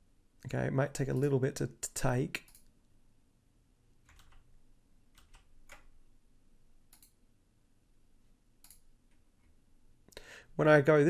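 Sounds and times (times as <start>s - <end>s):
computer mouse and keyboard clicks: 6.9s - 7.2s, 8.6s - 8.9s.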